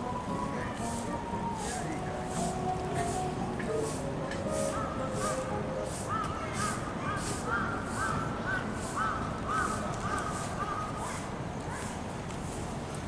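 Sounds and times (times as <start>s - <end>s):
crows cawing: 4.5s - 11.2s.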